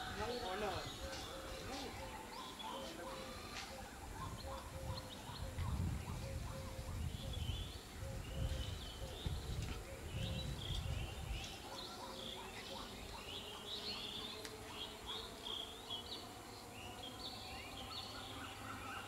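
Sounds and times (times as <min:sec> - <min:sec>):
birds chirping and calling: 0:00.0 - 0:19.0.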